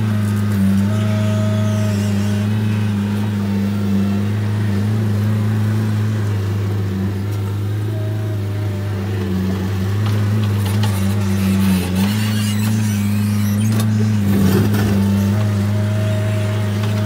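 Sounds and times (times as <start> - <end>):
loader engine running: 0.0 - 17.0
rattling and clanking: 9.5 - 15.6.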